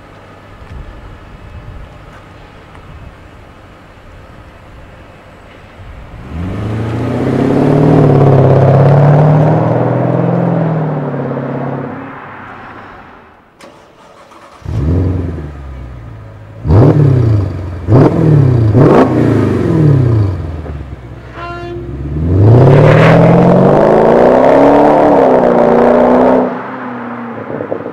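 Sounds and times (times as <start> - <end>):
loud car engine accelerating: 6.0 - 12.5, 14.1 - 21.1, 21.9 - 27.9
car engine revving: 6.0 - 13.0, 13.6 - 27.9.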